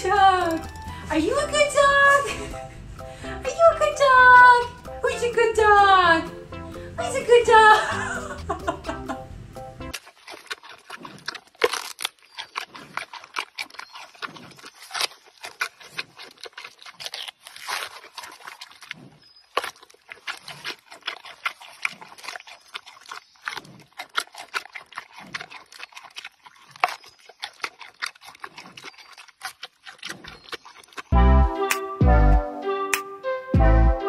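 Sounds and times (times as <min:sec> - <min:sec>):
panda chewing bamboo: 0:07.8 - 0:32.0.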